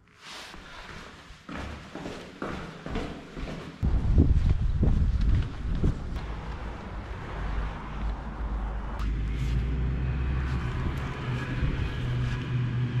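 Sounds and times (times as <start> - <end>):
vehicle engine hum: 3.8 - 13.0.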